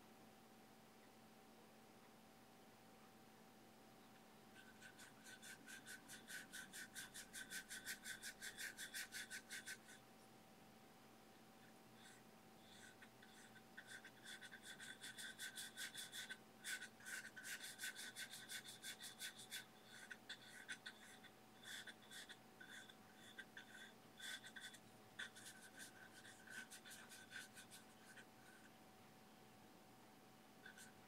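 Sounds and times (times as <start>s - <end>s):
brush scratching paint on panel: 4.6s - 10.0s, 12.0s - 28.7s, 30.6s - 31.0s.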